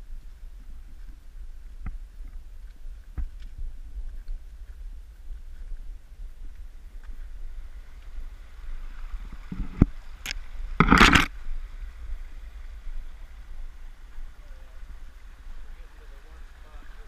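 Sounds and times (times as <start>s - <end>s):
creek running: 0.0s - 17.0s
steady low rumble: 0.0s - 17.0s
loud scrape: 10.8s - 11.3s.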